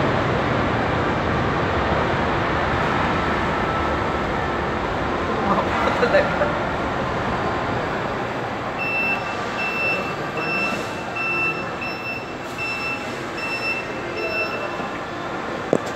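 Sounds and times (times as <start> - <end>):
steady background hum: 0.0 - 15.9
forklift warning beeper: 8.7 - 15.4.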